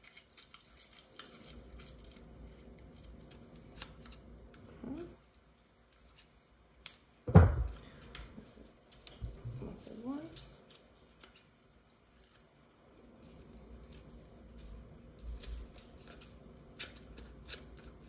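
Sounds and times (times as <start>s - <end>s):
scissors cutting paper: 0.0s - 4.2s, 15.2s - 18.0s
loud thump: 7.3s - 7.8s.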